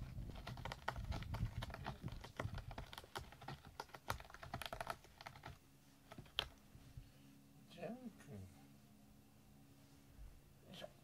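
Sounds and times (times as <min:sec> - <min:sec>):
cat claws scratching cardboard: 0:00.0 - 0:06.6.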